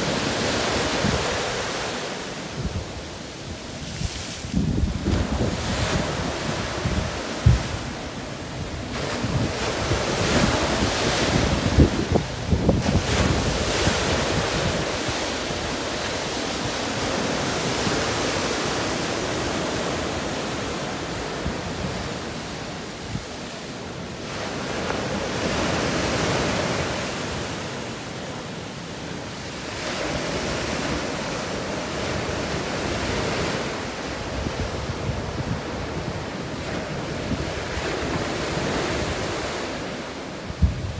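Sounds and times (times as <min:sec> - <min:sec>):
wind buffeting microphone: 0:00.0 - 0:20.2, 0:32.0 - 0:40.9
sea surf breaking on beach: 0:00.0 - 0:40.9.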